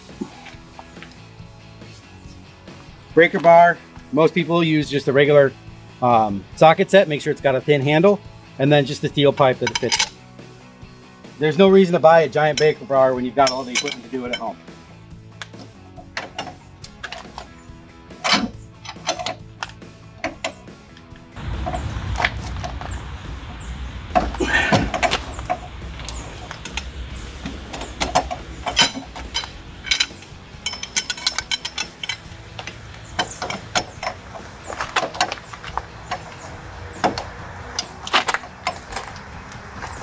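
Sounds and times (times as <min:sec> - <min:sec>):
low rumble: 0:21.4 - 0:30.6.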